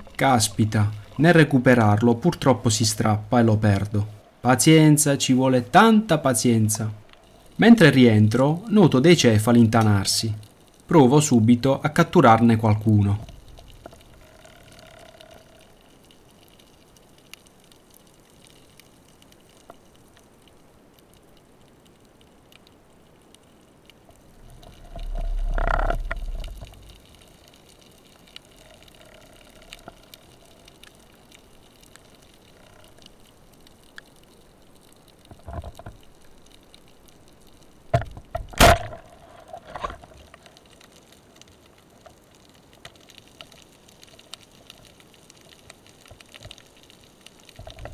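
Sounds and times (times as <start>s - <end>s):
faint underwater hiss: 0.0s - 47.9s
low rumbling water surge: 24.3s - 27.1s.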